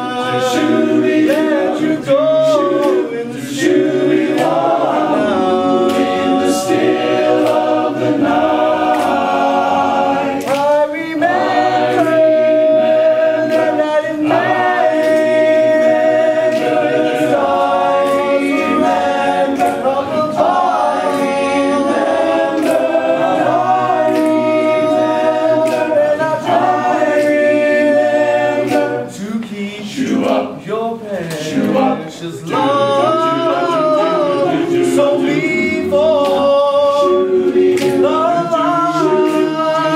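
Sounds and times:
men's chorus singing a cappella: 0.0 - 39.9.

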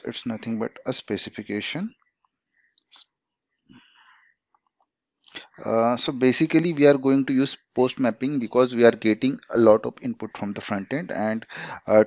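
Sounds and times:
soft breath: 11.5 - 11.9.

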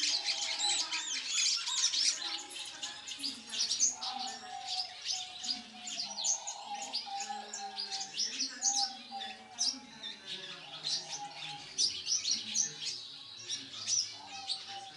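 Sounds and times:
birds chirping and twittering: 0.0 - 14.9.

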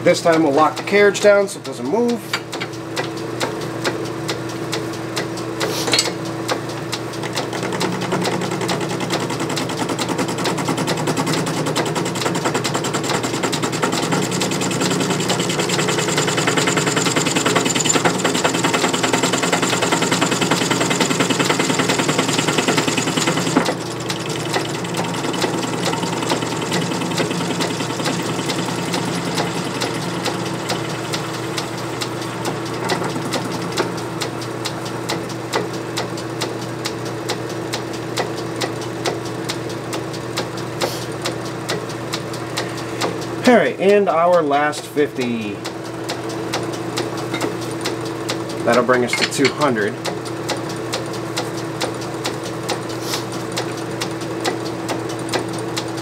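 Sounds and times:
lathe spindle hum: 0.0 - 56.0
lathe tool clattering on workpiece: 0.3 - 3.6, 5.6 - 6.6, 7.2 - 34.2, 46.6 - 50.2.

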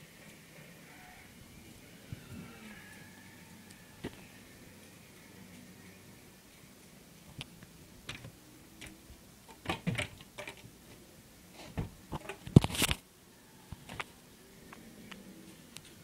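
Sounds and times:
crinkling rustles: 11.6 - 13.0.

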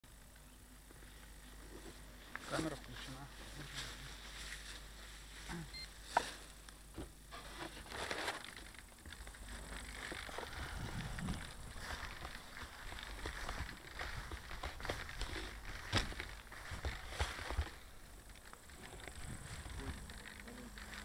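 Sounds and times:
faint rustling and handling: 0.9 - 21.0.

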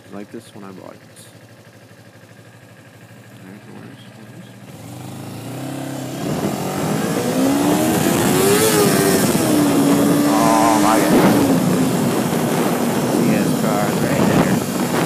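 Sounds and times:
motorcycle engine accelerating: 2.5 - 15.0
wind noise on microphone: 6.2 - 15.0.

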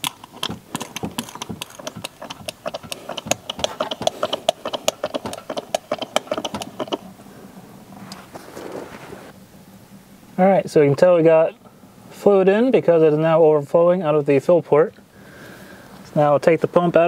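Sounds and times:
hand pump clicking: 0.0 - 7.0.

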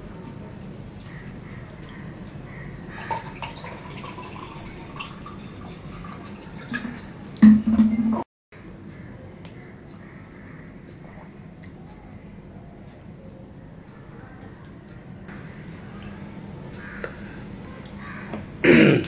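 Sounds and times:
low steady tone: 7.4 - 8.3.

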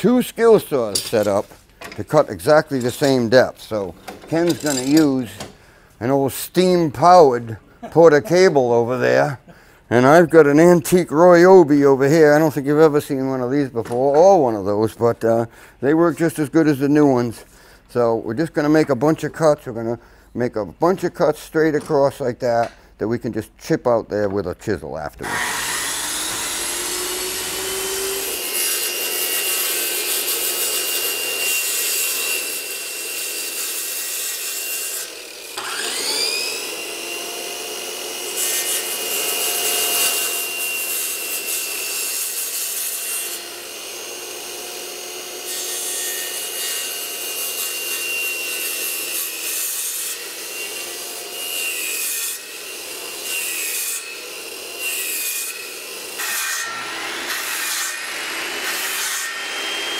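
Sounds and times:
circular saws whining: 2.7 - 5.5, 25.2 - 33.0, 35.0 - 42.0.

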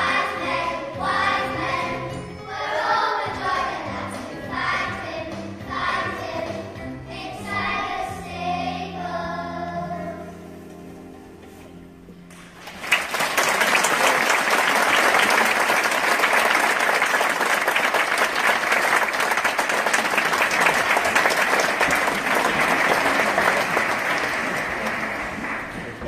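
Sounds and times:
audience applauding: 12.6 - 26.0.

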